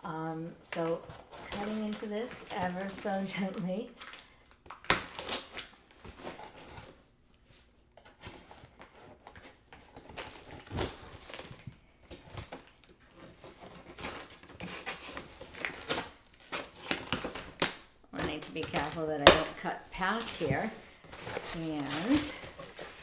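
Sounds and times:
knife slitting packing tape: 0:12.4 - 0:17.8.

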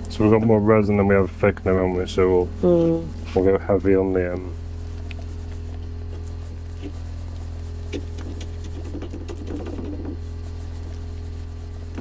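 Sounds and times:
stirring in plastic cup: 0:03.4 - 0:12.0.

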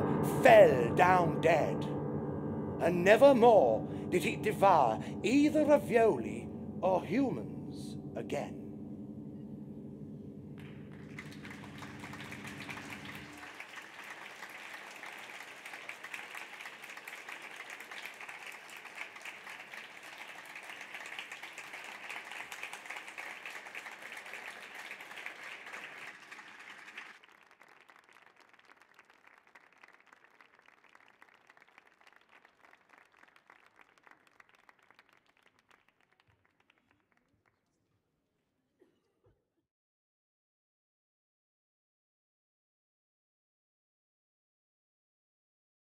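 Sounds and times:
audience applauding: 0:10.6 - 0:36.8.

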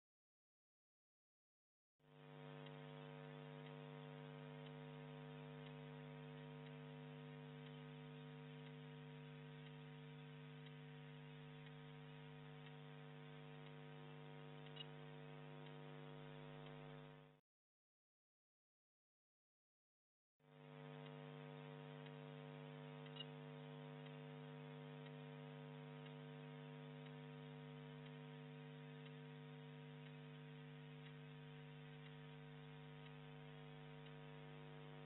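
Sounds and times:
faint mains hum: 0:02.1 - 0:17.4, 0:20.5 - 0:35.0
tiny click: 0:14.6 - 0:15.0, 0:23.0 - 0:23.3.

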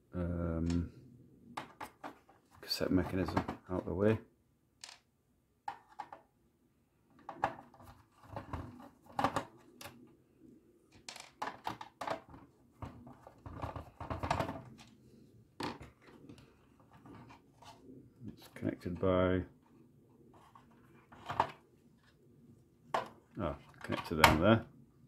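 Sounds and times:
parts being handled: 0:01.5 - 0:04.0, 0:04.8 - 0:06.3, 0:07.1 - 0:10.2, 0:10.9 - 0:22.2, 0:22.8 - 0:24.5.

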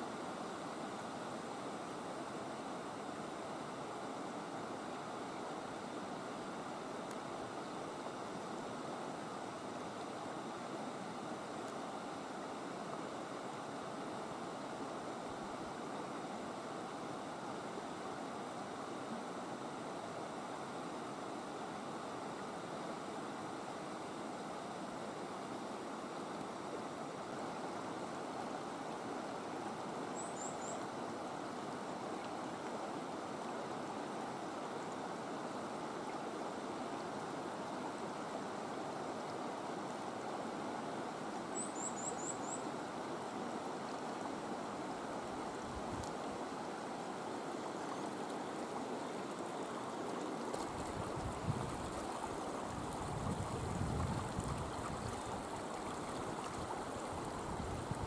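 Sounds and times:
water rushing over boulders: 0:42.8 - 0:58.0.

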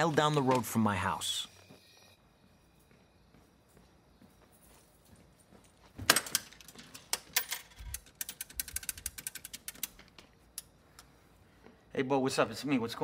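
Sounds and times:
coins clinking into payphone: 0:06.2 - 0:10.0.

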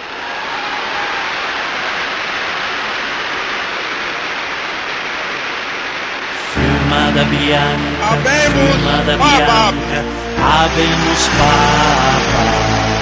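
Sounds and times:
steady hiss of noise: 0:00.0 - 0:06.7.

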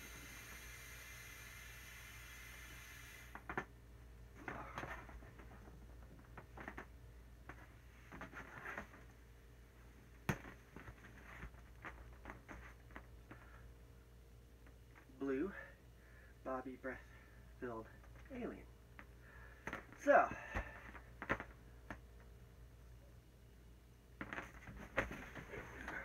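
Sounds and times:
blowing into inflatable valve: 0:00.0 - 0:03.5
squeaks and rubs of vinyl: 0:08.0 - 0:09.0.

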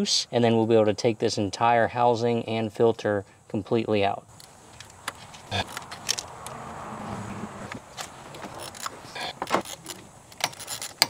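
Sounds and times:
wrench clicking on bolts: 0:08.6 - 0:11.0.

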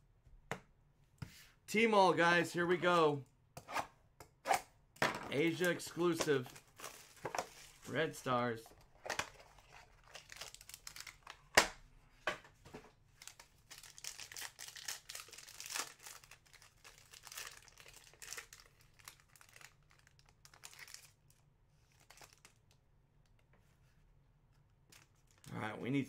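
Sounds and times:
foil wrapper crinkling and tearing: 0:09.5 - 0:11.4, 0:13.2 - 0:22.7.

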